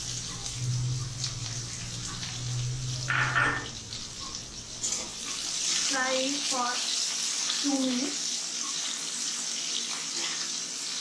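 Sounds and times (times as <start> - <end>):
low hum: 0.0 - 5.9
onion sizzling in hot oil: 0.0 - 11.0.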